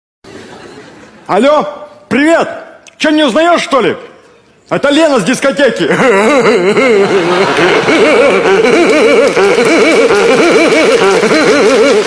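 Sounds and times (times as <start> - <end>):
woman laughing loudly: 5.9 - 12.0.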